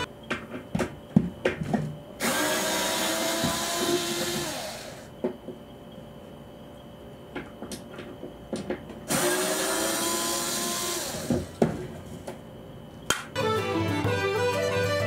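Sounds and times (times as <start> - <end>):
small electric motor running: 2.2 - 5.1, 9.1 - 11.4.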